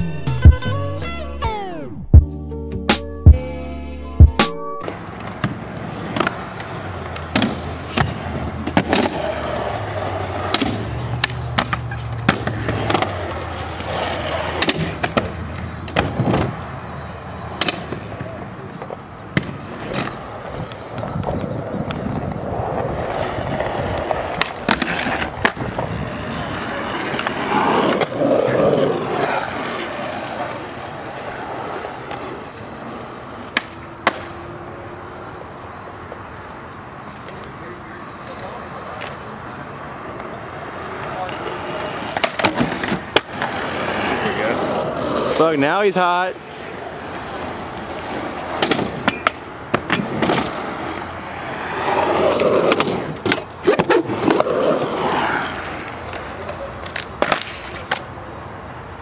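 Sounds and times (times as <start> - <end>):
skateboard wheels rolling on concrete: 0.0 - 59.0
skateboard clacking on landing: 17.5 - 20.2, 48.2 - 50.6, 56.0 - 58.1.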